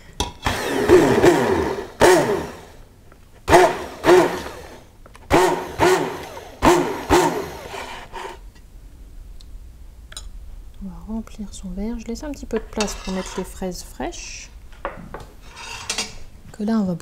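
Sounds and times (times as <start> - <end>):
hand blender motor whine: 0.4 - 2.8, 3.5 - 8.4.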